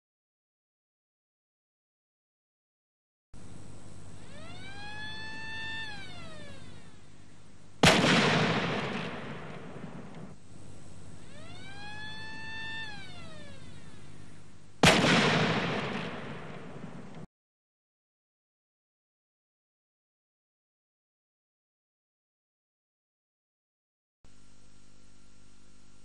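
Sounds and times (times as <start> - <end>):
loud gun blast: 7.8 - 10.4, 14.8 - 17.3.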